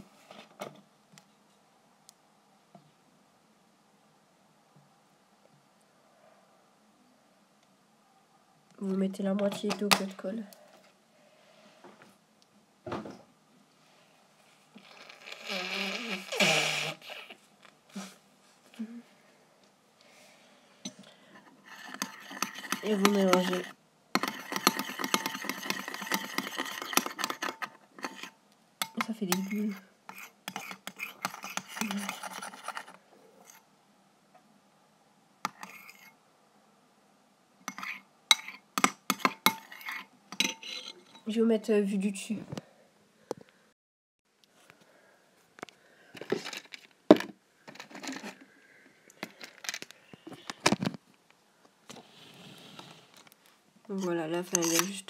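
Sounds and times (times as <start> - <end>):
utensil stirring in a container: 20.9 - 33.6, 35.5 - 36.1, 37.7 - 41.3, 53.9 - 55.0
objects knocking and clicking: 46.2 - 48.4.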